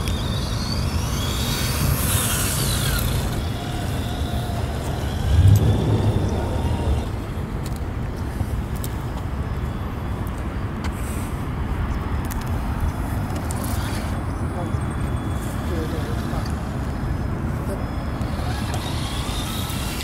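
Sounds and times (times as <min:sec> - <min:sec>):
toy truck motor whine: 0:00.0 - 0:07.2, 0:17.7 - 0:20.0
brief low rumble: 0:05.2 - 0:07.4.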